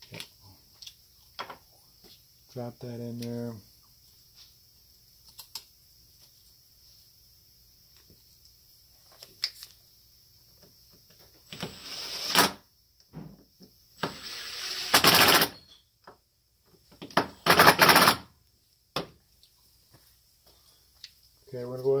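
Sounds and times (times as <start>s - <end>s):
compressed air nozzle hissing: 11.5s - 12.6s, 14.0s - 15.4s.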